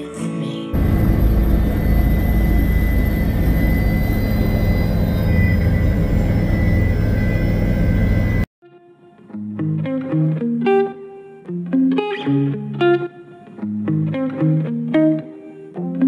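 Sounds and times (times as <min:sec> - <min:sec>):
helicopter rotor and engine drone: 0:00.8 - 0:08.5
high whine: 0:00.8 - 0:08.5.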